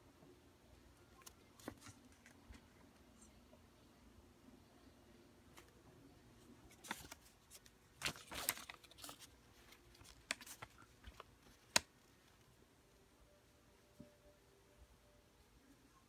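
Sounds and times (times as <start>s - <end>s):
banknotes rustling: 6.7s - 11.9s
paper snap: 11.6s - 11.9s.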